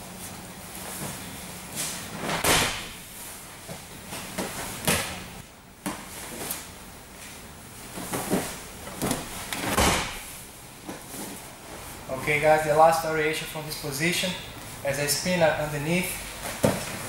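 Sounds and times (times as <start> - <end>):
bodies thudding on gym mats: 2.0 - 6.6, 7.9 - 11.4.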